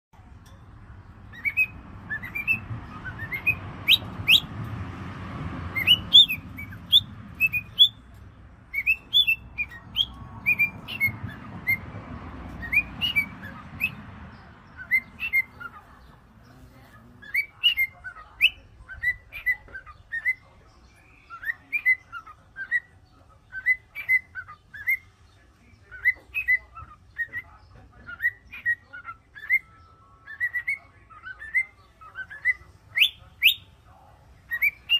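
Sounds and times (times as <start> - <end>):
cockatiels chirping and whistling: 1.3 - 4.5, 5.7 - 8.1, 8.7 - 14.0, 14.7 - 15.9, 17.2 - 20.5, 21.2 - 25.1, 25.8 - 33.7, 34.5 - 34.9.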